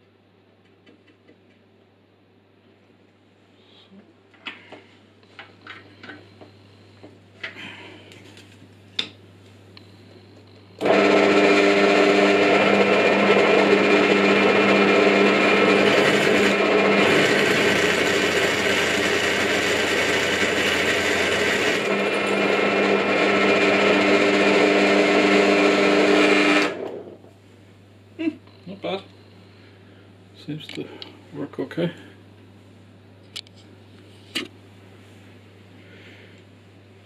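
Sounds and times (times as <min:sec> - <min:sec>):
drill press motor humming: 0:10.7 - 0:27.3
drill bit cutting aluminium: 0:10.8 - 0:26.9.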